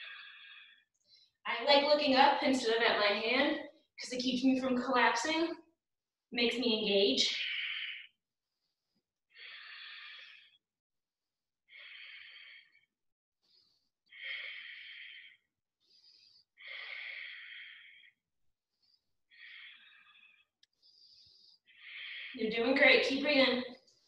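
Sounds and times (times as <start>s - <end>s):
woman breathing: 0.0s - 1.4s, 7.2s - 10.6s, 11.7s - 22.4s.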